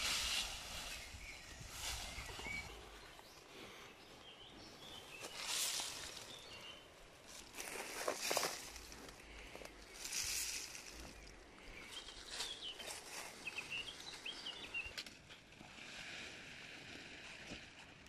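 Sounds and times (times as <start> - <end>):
leaves rustling: 0.0 - 3.8, 4.7 - 18.0
faint bird chirps: 0.6 - 7.0.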